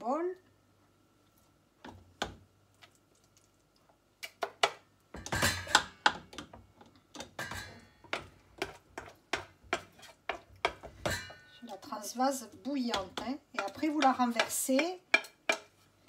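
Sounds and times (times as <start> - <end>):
wooden spoon knocking on saucepan: 7.2 - 11.4, 12.8 - 15.7.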